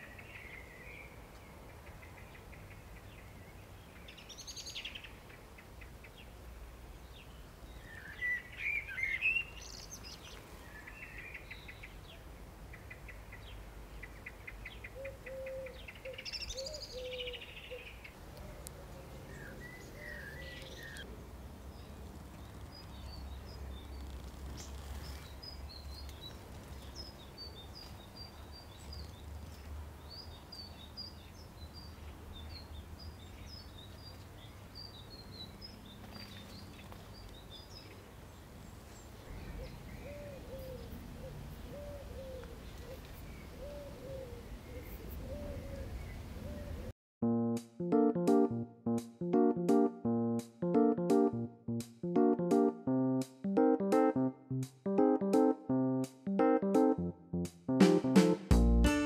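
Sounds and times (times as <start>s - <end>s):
songbird chirping: 0.0s - 46.9s
dove cooing: 15.0s - 15.8s, 39.5s - 46.9s.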